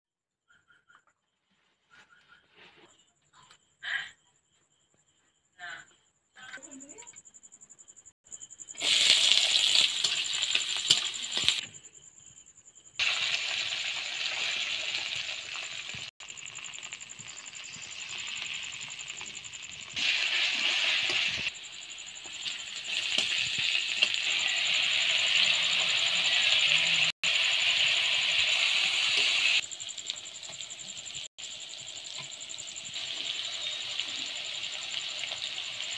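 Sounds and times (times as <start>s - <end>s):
oil sizzling in a pan: 8.7s - 11.7s, 13.0s - 35.9s.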